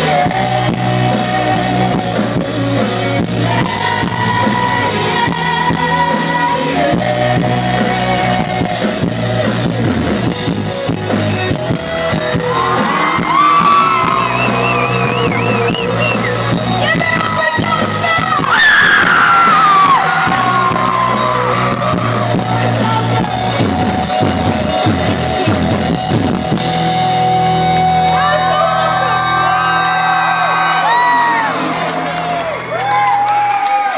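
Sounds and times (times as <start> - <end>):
woman singing: 0.0 - 9.7, 15.6 - 19.9
live band playing a ballad: 0.0 - 32.8.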